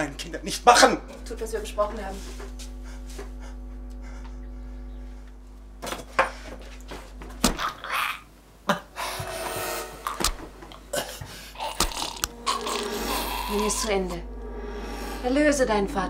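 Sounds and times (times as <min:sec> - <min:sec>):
low music drone: 0:00.0 - 0:07.6, 0:08.9 - 0:16.0.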